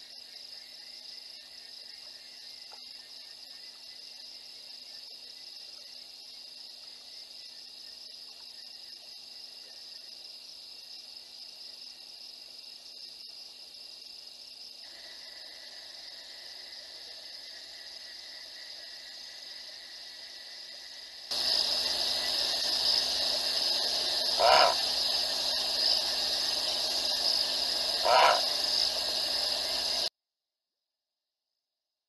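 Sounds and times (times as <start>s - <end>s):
night insects chorus: 0.0s - 30.1s
short animal calls: 24.3s - 24.9s, 28.0s - 28.6s.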